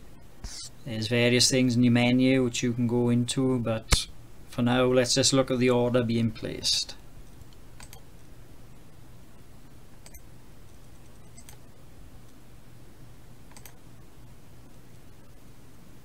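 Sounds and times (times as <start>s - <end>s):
low steady hum: 0.0s - 16.0s
faint clicks: 7.2s - 8.3s, 13.5s - 13.8s.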